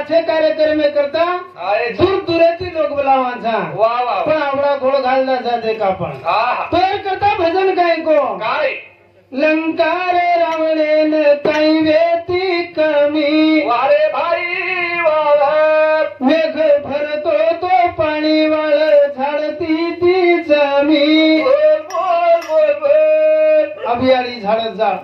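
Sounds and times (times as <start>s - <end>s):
man singing unaccompanied: 9.4s - 24.5s.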